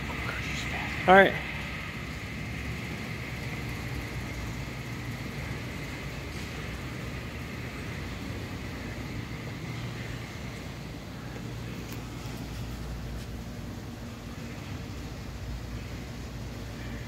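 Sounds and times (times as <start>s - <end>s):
low hum: 0.0s - 17.0s.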